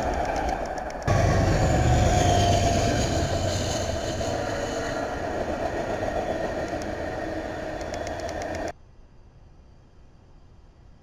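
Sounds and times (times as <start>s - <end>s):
train rumbling on rails: 0.0s - 8.8s.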